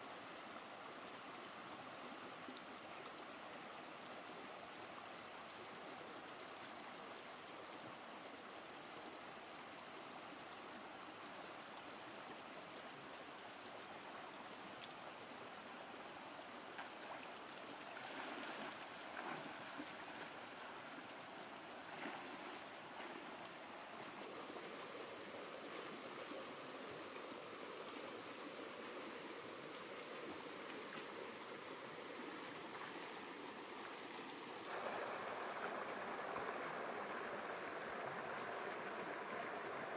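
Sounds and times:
stream running over stones: 0:00.0 - 0:39.9
splashes from wading: 0:17.7 - 0:20.4.

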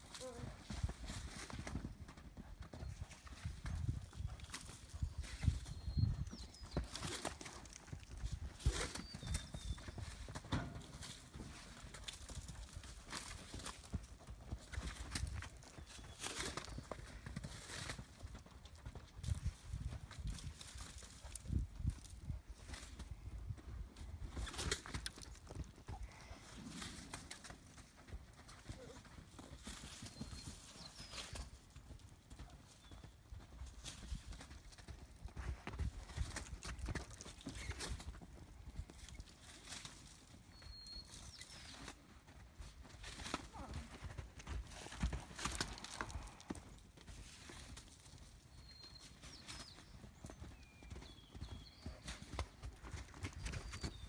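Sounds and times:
horse hooves on dirt: 0:00.0 - 0:54.0.

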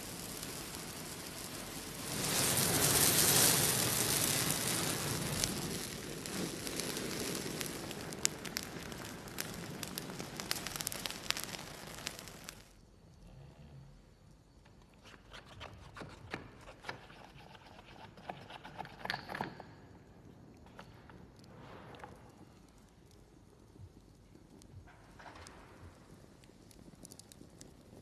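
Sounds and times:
burning twigs crackling and popping: 0:00.0 - 0:13.0, 0:20.2 - 0:28.0
rush of flame: 0:00.0 - 0:14.0, 0:20.9 - 0:28.0.

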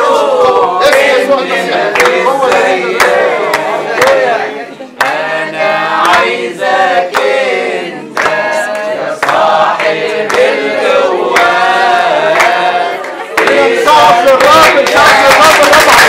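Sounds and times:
people singing a worship song: 0:00.0 - 0:16.0
sharp clap-like beat: 0:01.9 - 0:04.4, 0:06.0 - 0:06.4, 0:08.1 - 0:16.0.

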